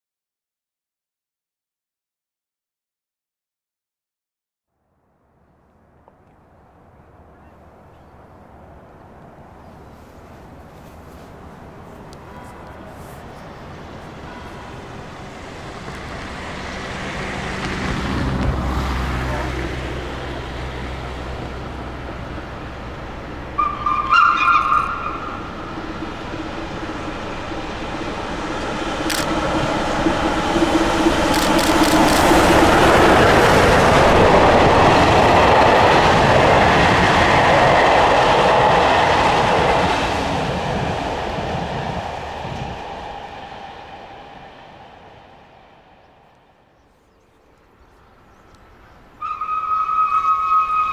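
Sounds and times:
steam train passing: 0:05.4 - 0:50.9
steam train whistle: 0:23.5 - 0:25.6, 0:49.2 - 0:50.9.

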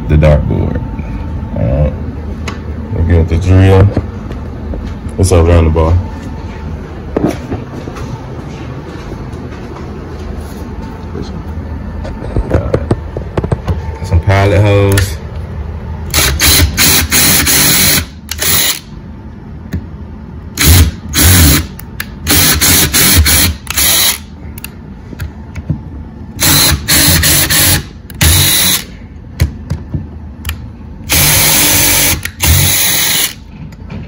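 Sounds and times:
cordless drill whirring: 0:16.1 - 0:18.9, 0:20.6 - 0:21.7, 0:22.3 - 0:24.2, 0:26.4 - 0:28.9, 0:31.1 - 0:33.4.

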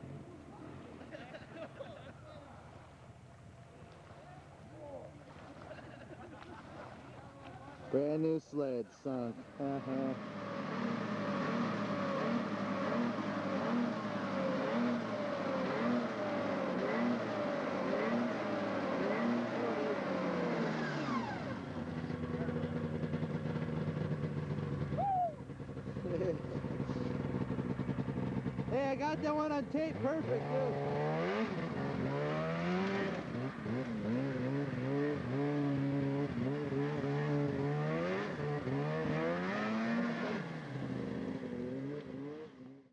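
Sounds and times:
snowmobile engine pulsing: 0:08.9 - 0:42.9.

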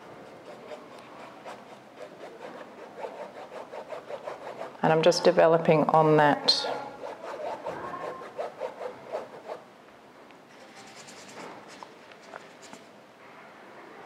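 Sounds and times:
paintbrush scratching on canvas: 0:00.0 - 0:05.3, 0:06.6 - 0:09.6, 0:10.6 - 0:12.9.

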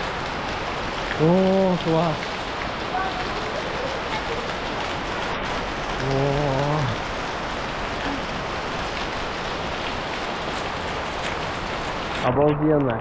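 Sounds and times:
heavy rain pouring: 0:00.0 - 0:13.0
man's wordless vocal sound: 0:06.0 - 0:07.0.

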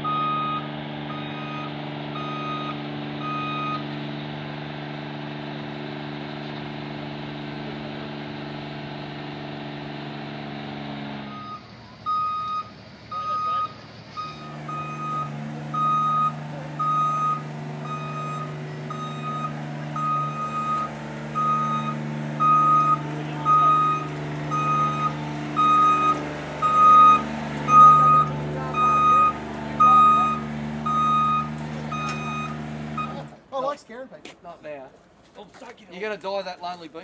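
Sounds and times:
scissor lift alarm beeping: 0:00.0 - 0:03.8, 0:11.3 - 0:33.3.

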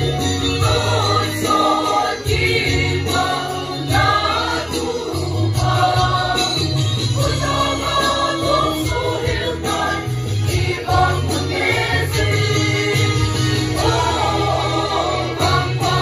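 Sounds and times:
choir singing a hymn: 0:00.0 - 0:16.0.

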